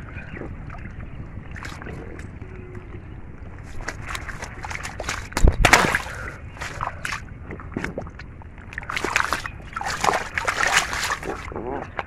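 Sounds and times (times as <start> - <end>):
splashing in shallow muddy water: 0.0 - 2.5, 3.5 - 12.0.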